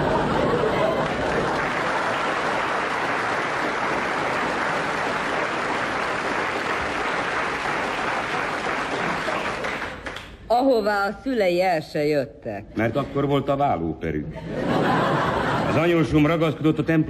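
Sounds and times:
audience applause: 0.0s - 10.3s.

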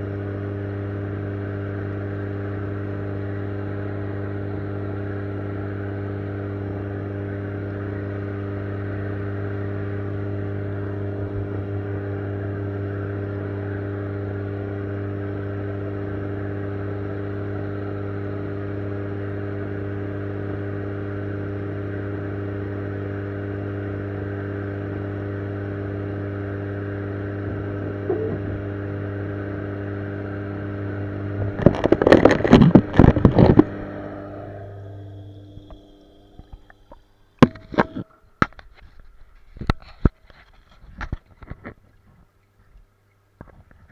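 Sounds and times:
aquarium equipment humming: 0.0s - 43.9s
camera knocking and scraping: 31.4s - 33.7s, 37.4s - 41.8s.

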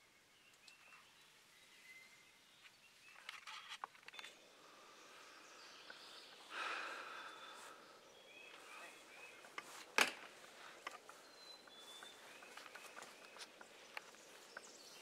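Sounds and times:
bird chirps: 0.0s - 15.0s
breathy rush: 4.6s - 8.1s.

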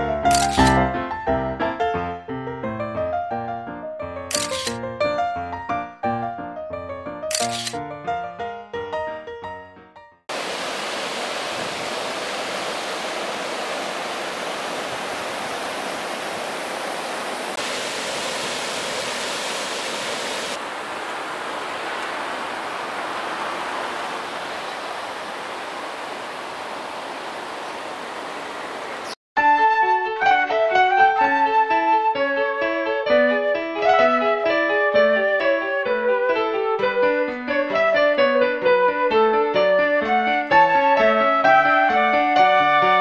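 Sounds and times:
piano music: 0.0s - 10.2s, 29.4s - 43.0s
water rushing over weir: 10.3s - 29.1s.

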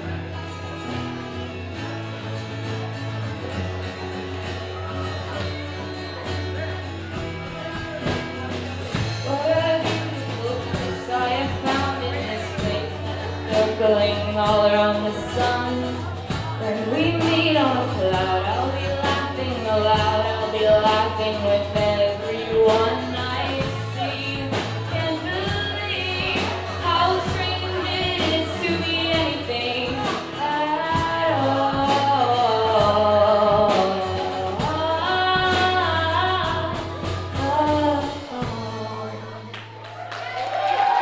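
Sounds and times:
strummed acoustic guitar: 0.0s - 39.8s
drums: 0.0s - 41.0s
woman singing wordless melody: 9.2s - 39.5s.

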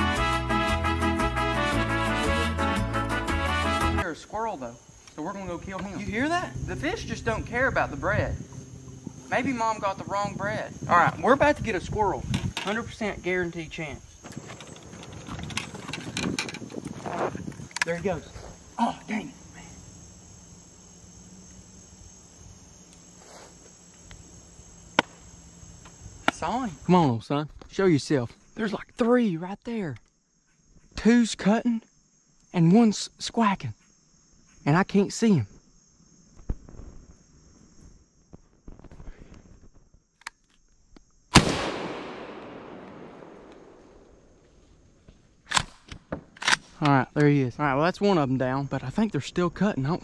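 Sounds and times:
high-pitched insect chorus: 0.0s - 50.0s
echoing shotgun shot: 41.3s - 44.3s
sharp click: 42.4s - 43.7s.

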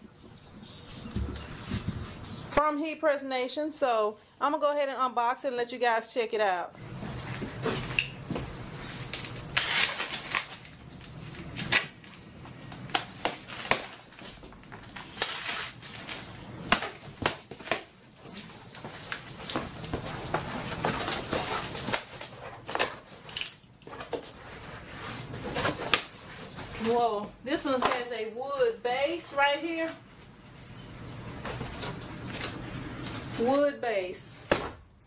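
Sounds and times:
packing tape tearing: 9.0s - 24.2s.

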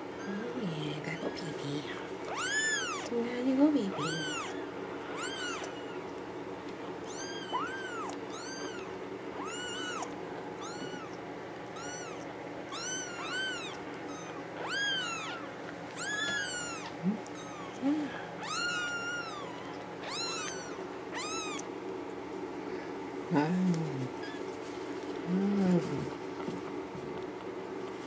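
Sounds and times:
kitten mewing: 2.3s - 3.1s, 3.9s - 6.1s, 7.1s - 21.7s, 23.3s - 24.5s.

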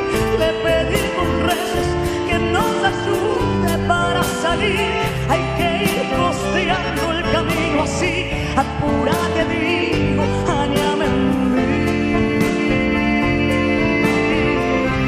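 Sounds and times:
accordion: 0.0s - 15.0s
bass: 0.0s - 15.0s
drums: 0.0s - 15.0s.

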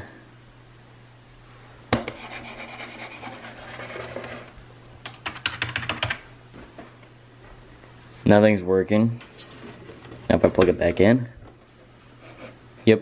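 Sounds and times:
steady low hum: 0.0s - 13.0s
rubbing and scraping: 2.2s - 4.5s.

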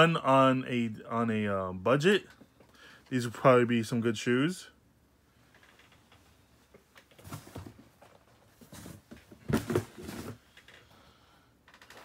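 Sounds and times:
shoes rustling and knocking: 6.7s - 10.5s.

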